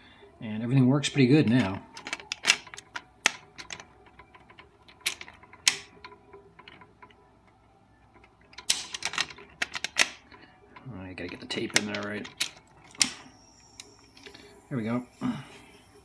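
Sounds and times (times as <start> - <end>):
cassette clicking in deck: 1.5 - 7.2, 8.1 - 13.2.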